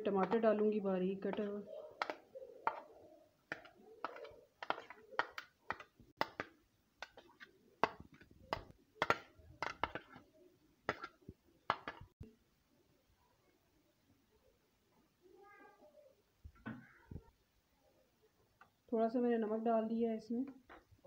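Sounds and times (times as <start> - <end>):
metal spoon scraping plastic container: 0.0 - 2.9, 3.5 - 10.3.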